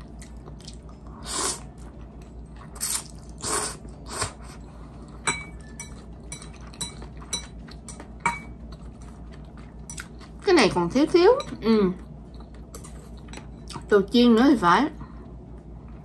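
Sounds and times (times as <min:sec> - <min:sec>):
chewing: 0:00.0 - 0:04.0, 0:05.9 - 0:10.5.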